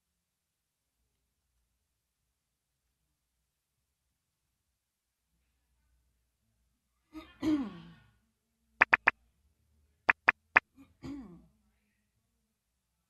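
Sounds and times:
woman clearing her throat: 7.2 - 8.0, 10.8 - 11.5
sharp clicks: 8.8 - 9.1, 10.1 - 10.6.

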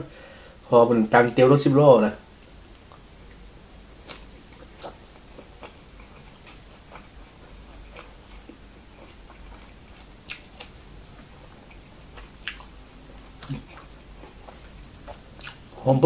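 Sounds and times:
close chewing with wet clicks: 4.0 - 15.7.

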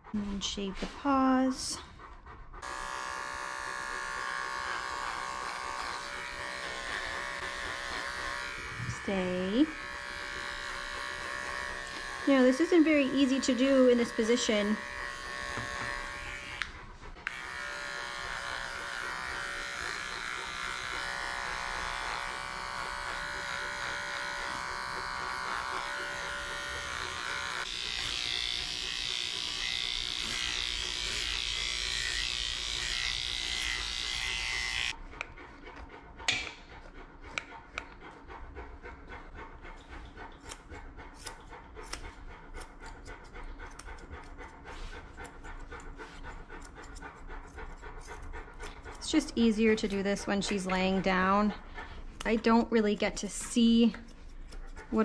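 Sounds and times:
dog panting: 0.0 - 55.0
electric clippers buzzing: 2.6 - 35.0, 48.6 - 51.5
scissors clicking: 40.4 - 44.4, 45.2 - 50.7, 52.2 - 55.0.

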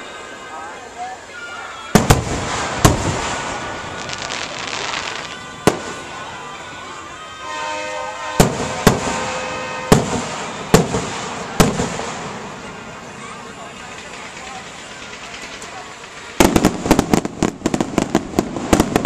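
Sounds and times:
fireworks crackling: 1.3 - 19.0
firework bangs: 1.9 - 6.5, 7.5 - 13.1, 13.8 - 19.0.

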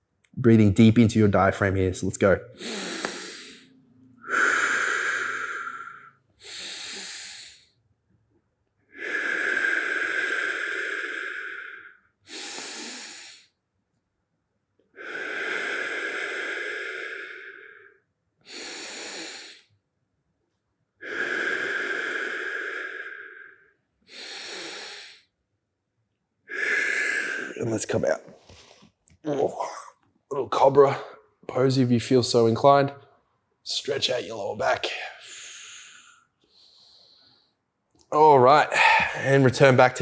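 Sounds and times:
man breathing deeply: 2.6 - 7.8, 8.9 - 13.6, 15.0 - 19.7, 21.0 - 25.3, 26.5 - 27.8, 35.0 - 37.7, 38.6 - 39.4.

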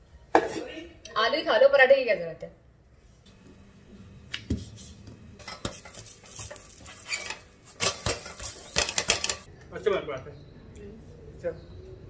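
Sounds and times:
spatula scraping iron griddle: 5.4 - 9.5.

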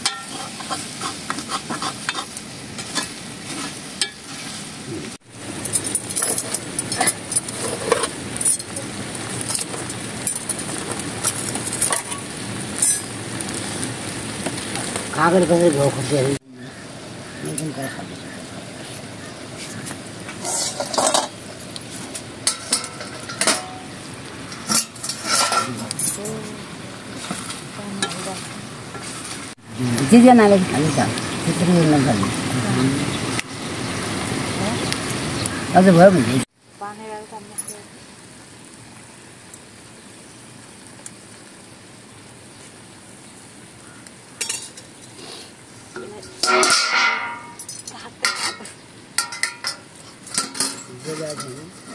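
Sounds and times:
metal cookware clinking: 0.0 - 3.2, 4.0 - 4.3, 5.6 - 10.6, 11.2 - 13.1, 20.3 - 21.6, 22.4 - 26.3, 44.4 - 44.9, 45.9 - 51.9
outdoor background hiss: 0.0 - 51.9
ladle and dishes clattering: 22.4 - 23.8, 46.0 - 51.9.

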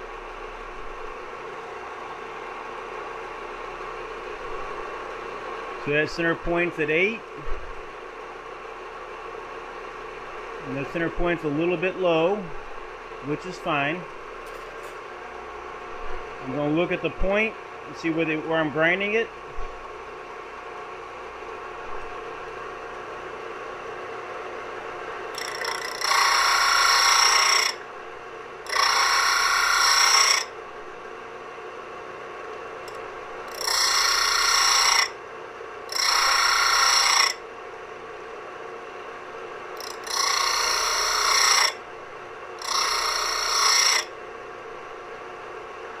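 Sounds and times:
disc sander motor hum: 15.1 - 45.9
drill bit grinding on sanding disc: 25.3 - 27.8, 28.6 - 30.6, 32.9 - 35.2, 35.9 - 37.4, 39.8 - 41.8, 42.6 - 44.1.

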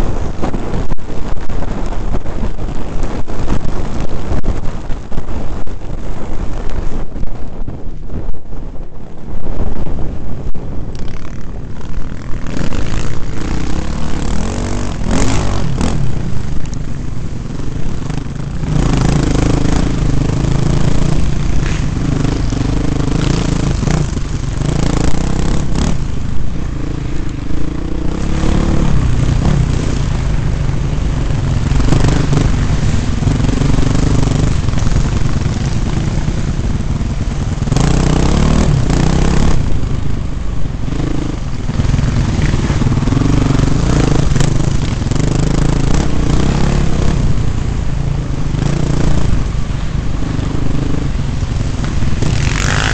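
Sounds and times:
dirt bike engine revving: 11.0 - 40.2, 40.8 - 52.9.

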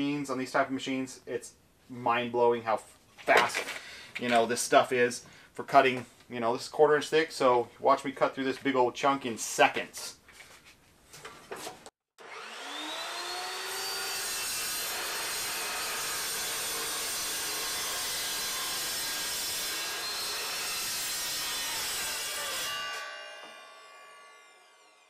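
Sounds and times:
chop saw whining: 12.2 - 25.0
saw cutting steel tube: 12.2 - 25.0.

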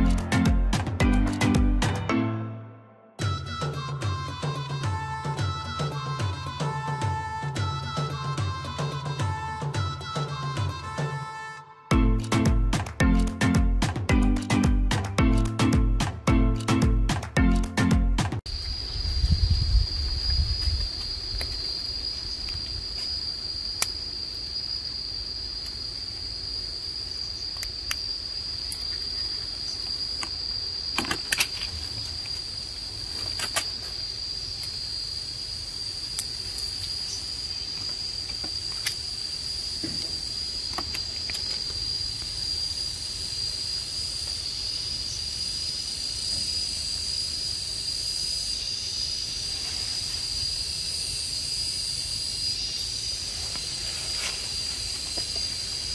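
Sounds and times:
insect drone: 3.2 - 13.5, 18.5 - 55.9
fruit snapping from stalks: 27.5 - 28.1, 36.0 - 37.0.

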